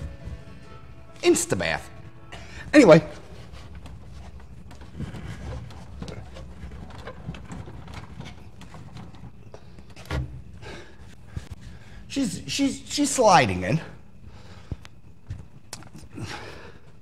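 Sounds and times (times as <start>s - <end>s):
low steady shop hum: 0.0s - 17.0s.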